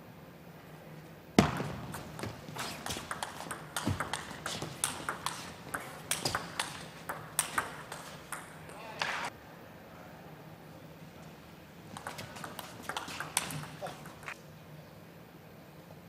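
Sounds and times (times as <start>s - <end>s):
table tennis ball clicking: 2.9s - 8.8s, 12.0s - 14.3s.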